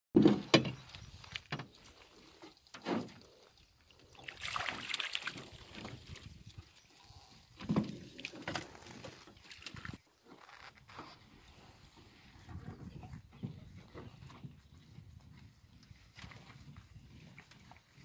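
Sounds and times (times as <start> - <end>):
fish splashing in net: 4.2 - 6.0.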